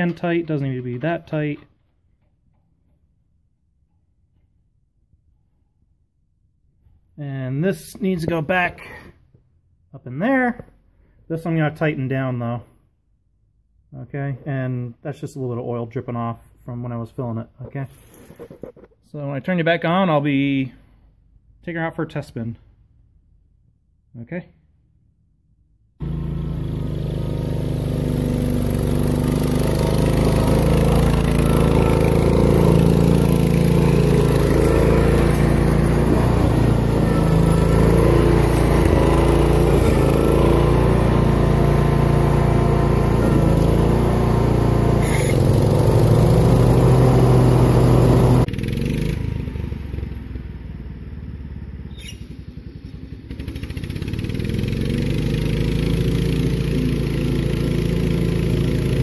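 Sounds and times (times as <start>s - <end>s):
garden tractor engine running: 26.0s - 50.8s, 51.9s - 59.0s.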